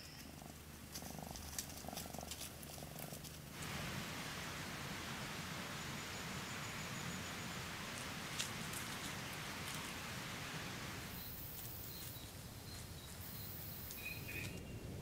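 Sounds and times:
faint rustles and clicks: 0.0 - 4.0, 7.9 - 10.1
steady hiss of wind in foliage: 0.0 - 15.0
high steady insect tones: 3.6 - 14.7.

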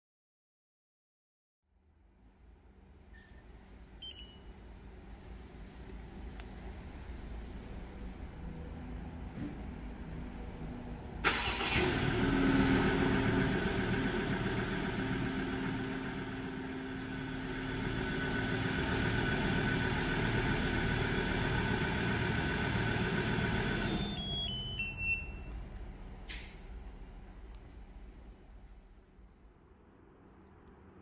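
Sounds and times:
short electronic beeps: 4.0 - 4.4, 23.9 - 25.5
car engine starting and idling: 7.6 - 29.4.

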